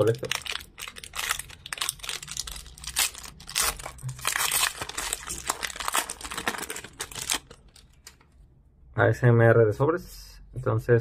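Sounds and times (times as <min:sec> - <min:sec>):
foil wrapper crinkling and tearing: 0:00.0 - 0:08.2.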